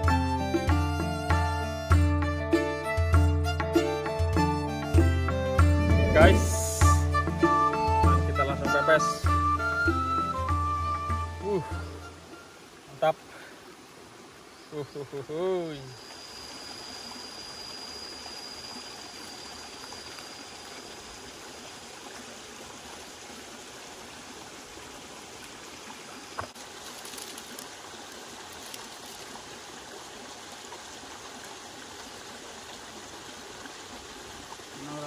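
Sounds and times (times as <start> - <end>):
river water flowing: 0.0 - 35.0
thin high whine: 5.6 - 7.1, 15.3 - 21.1.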